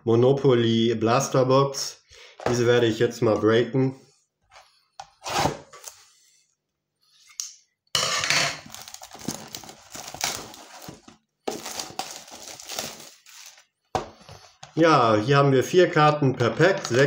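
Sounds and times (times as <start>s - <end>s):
shrink wrap tearing and crinkling: 8.6s - 13.7s.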